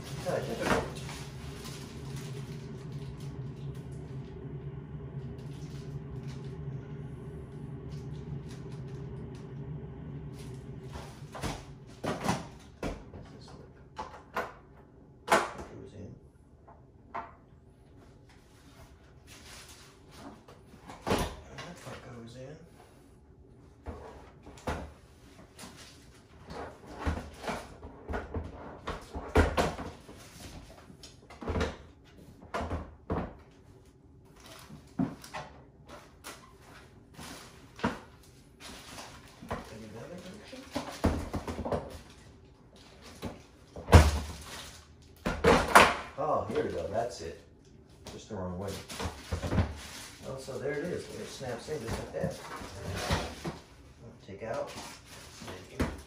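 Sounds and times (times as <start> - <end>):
low hum: 0.0 - 15.3.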